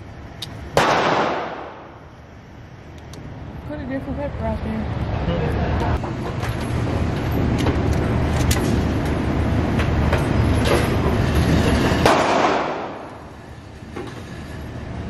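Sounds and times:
pistol shots: 0.8 - 2.0, 12.1 - 13.1.

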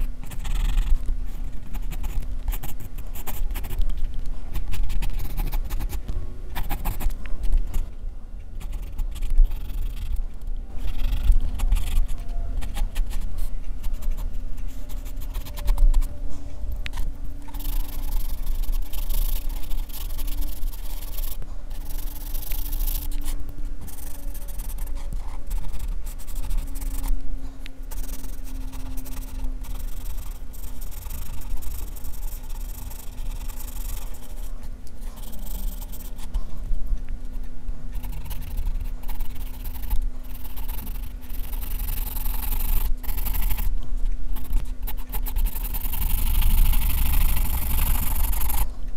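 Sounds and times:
pencil scratching on paper: 0.0 - 7.9, 8.6 - 10.2, 10.8 - 27.2, 27.9 - 36.6, 37.9 - 48.7.

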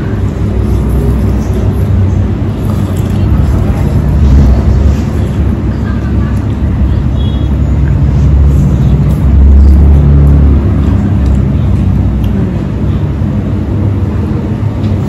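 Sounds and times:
loud low rumble: 0.0 - 15.0.

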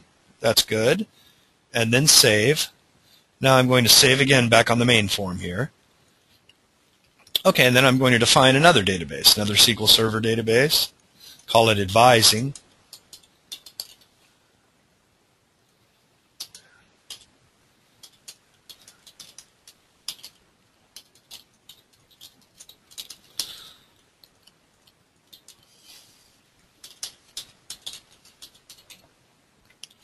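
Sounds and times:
computer keyboard typing: 12.5 - 14.0, 16.4 - 17.3, 18.0 - 23.6, 26.8 - 29.1.

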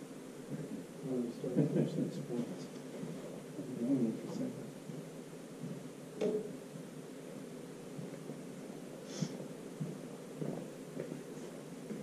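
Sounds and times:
low room hum: 0.0 - 12.0
person sniffing: 9.0 - 9.4.

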